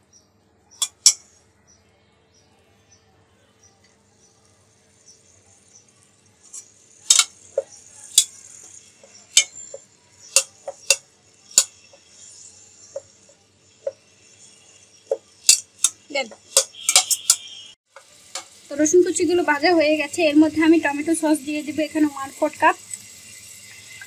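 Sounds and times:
faint sizzle: 0.6s - 24.0s
metal spatula scraping frying pan: 6.5s - 17.6s.

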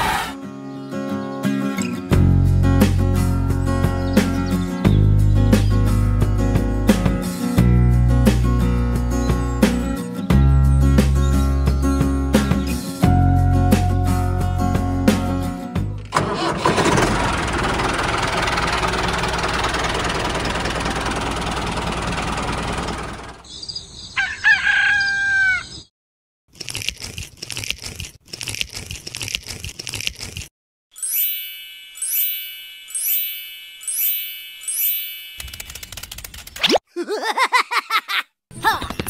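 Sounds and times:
music: 0.3s - 16.1s, 31.0s - 35.4s
rooster crowing: 24.2s - 25.8s
ringing bell-like dings: 30.9s - 35.7s.

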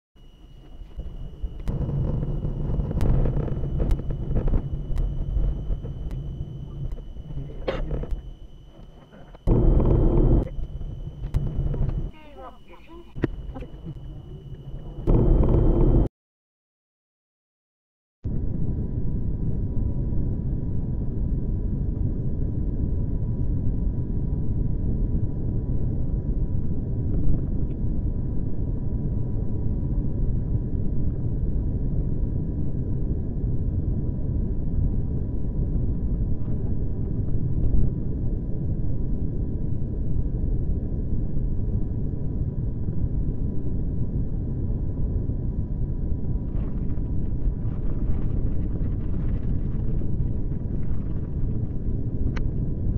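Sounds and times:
faint high-pitched whine: 0.2s - 16.1s.

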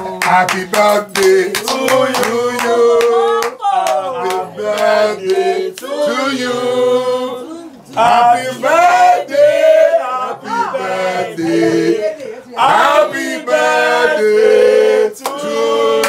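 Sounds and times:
group singing a cappella: 0.0s - 16.0s.

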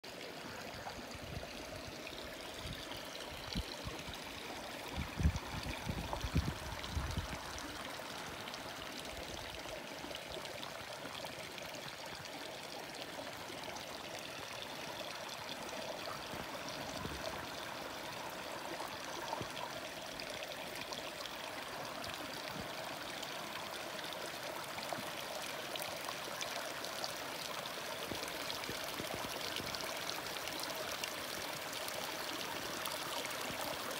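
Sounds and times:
creek babbling over rocks: 0.0s - 33.9s.

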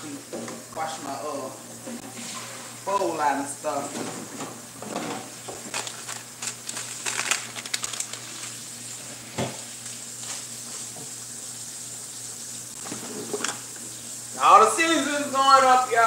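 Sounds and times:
meat sizzling in a pan: 5.3s - 13.0s, 13.6s - 14.8s.

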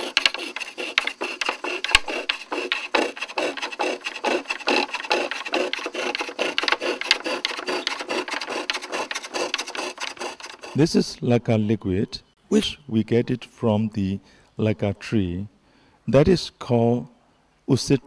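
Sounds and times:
scroll saw cutting wood: 0.0s - 11.0s.

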